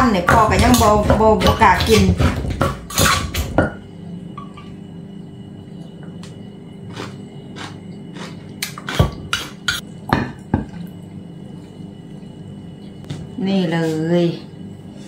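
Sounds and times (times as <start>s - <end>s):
wooden pestle knocking in clay mortar: 0.1s - 3.8s.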